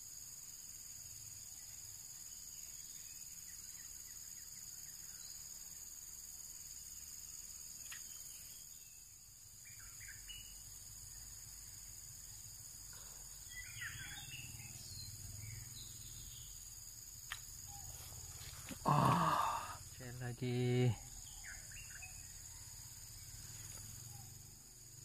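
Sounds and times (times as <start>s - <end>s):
insects chirring: 0.0s - 25.0s
faint click: 7.8s - 8.2s
bird chirps: 7.8s - 16.8s, 20.0s - 24.6s.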